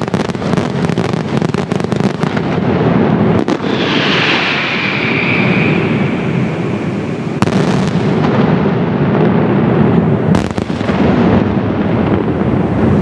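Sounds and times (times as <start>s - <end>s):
sharp firework bangs: 0.0s - 9.6s.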